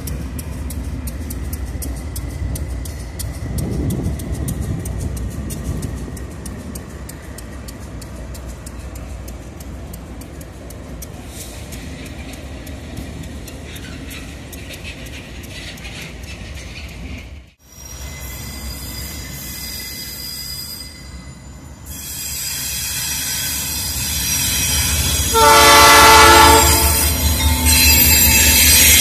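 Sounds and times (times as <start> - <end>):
diesel locomotive engine rumble: 0.0 - 29.0
wheels clicking on track: 0.0 - 29.0
wheels screeching on rail: 0.0 - 29.0.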